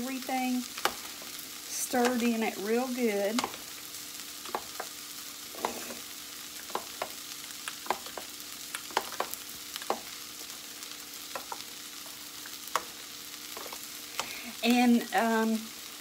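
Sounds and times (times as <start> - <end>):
vegetables sizzling in skillet: 0.0 - 16.0.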